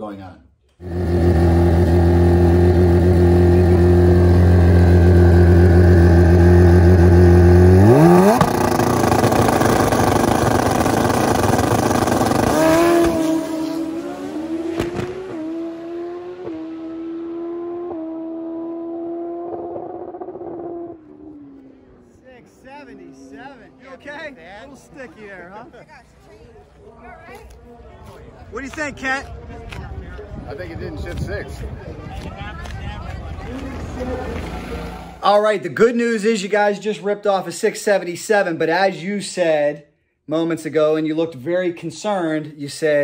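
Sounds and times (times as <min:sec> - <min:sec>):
drag bike engines revving: 0:00.8 - 0:25.8, 0:33.3 - 0:35.3.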